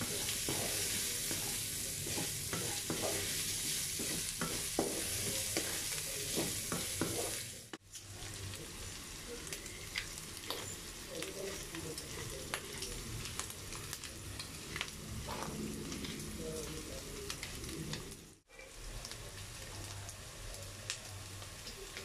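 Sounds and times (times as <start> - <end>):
wooden spatula scraping and stirring: 0.0 - 8.1
meat and onion sizzling in a wok: 0.0 - 22.0.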